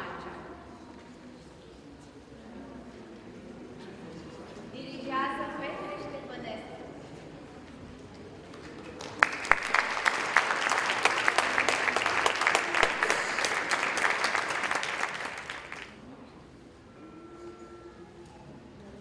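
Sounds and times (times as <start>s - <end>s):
audience applauding: 8.4s - 16.0s.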